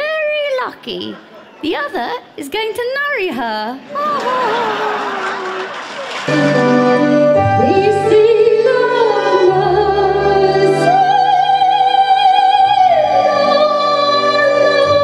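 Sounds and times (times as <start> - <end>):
instrumental backing music: 6.3 - 15.0
woman singing operatic soprano: 7.5 - 15.0.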